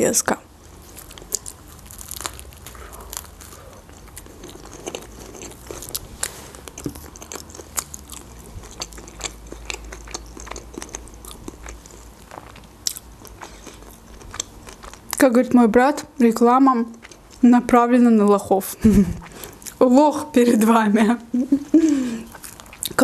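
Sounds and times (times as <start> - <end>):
chewing with crunches: 0.6 - 15.4, 16.8 - 17.5, 19.2 - 20.0, 21.9 - 23.0
biting into a wrap: 0.8 - 15.1.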